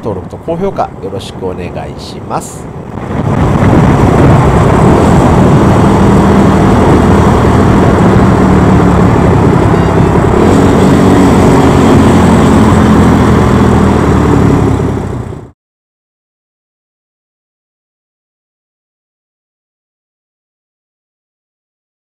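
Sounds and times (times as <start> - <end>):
motorcycle engine running: 3.1 - 15.5.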